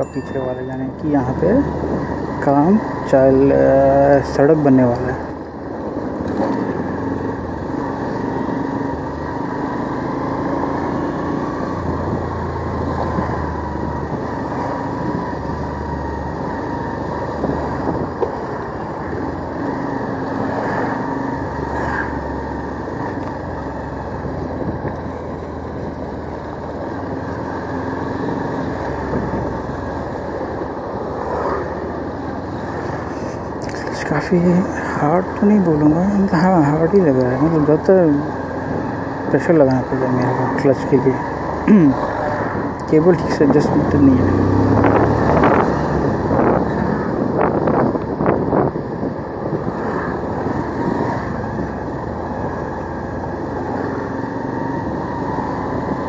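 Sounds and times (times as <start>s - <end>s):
wind noise: 16.6s - 19.2s, 24.3s - 25.2s, 28.3s - 29.7s, 42.3s - 52.6s.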